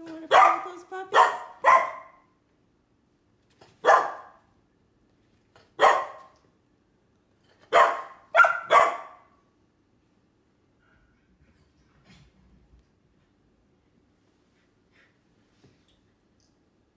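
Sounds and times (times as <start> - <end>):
puppies barking: 0.3 - 2.2, 3.8 - 4.4, 7.7 - 9.2.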